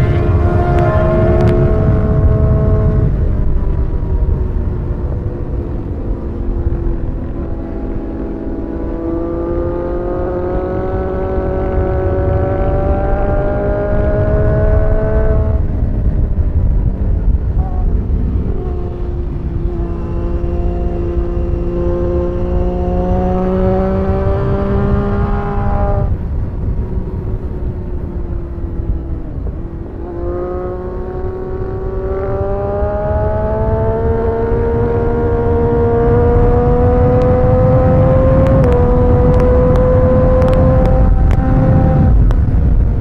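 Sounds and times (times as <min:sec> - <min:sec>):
motorcycle engine revving: 0:00.0 - 0:43.0
wind rush: 0:00.0 - 0:43.0.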